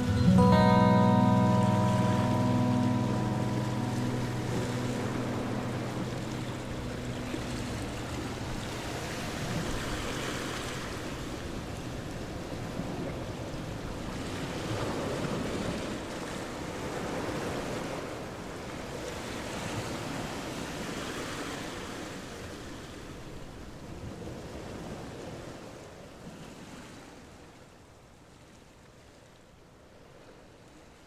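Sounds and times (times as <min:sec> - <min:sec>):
ocean waves washing in: 0:00.0 - 0:22.2.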